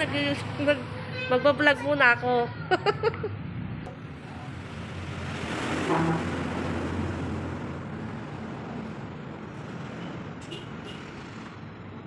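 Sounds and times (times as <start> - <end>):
traffic hum: 0.0 - 12.0
heavy vehicle engine rumble: 2.6 - 12.0.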